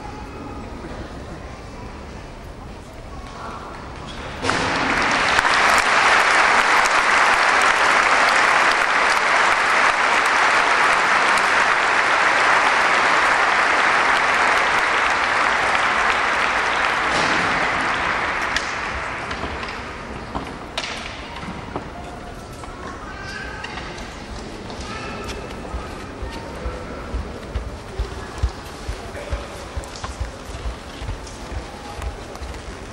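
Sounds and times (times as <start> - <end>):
audience applause: 4.4 - 19.4, 27.1 - 32.9.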